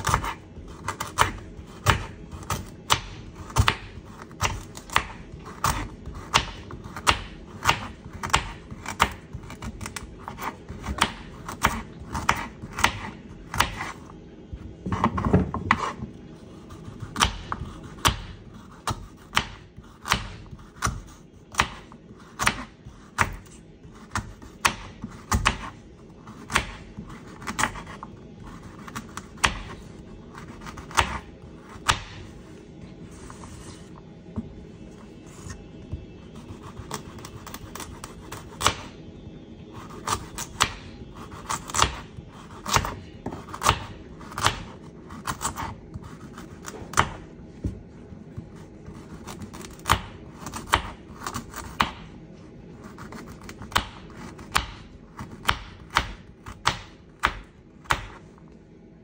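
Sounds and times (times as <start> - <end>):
knife chopping carrot on board: 53.0 - 58.2.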